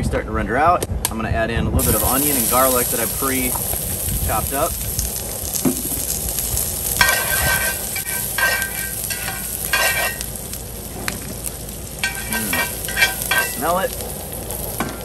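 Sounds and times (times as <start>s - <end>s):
onion sizzling in grease: 1.8s - 15.0s
metal spoon scraping pan: 7.0s - 10.3s, 12.0s - 13.8s.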